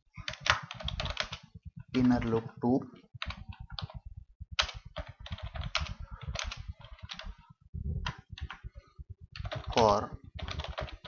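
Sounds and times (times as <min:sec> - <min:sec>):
typing on computer keyboard: 0:00.2 - 0:01.4, 0:03.2 - 0:04.0, 0:04.6 - 0:08.7, 0:09.4 - 0:11.0.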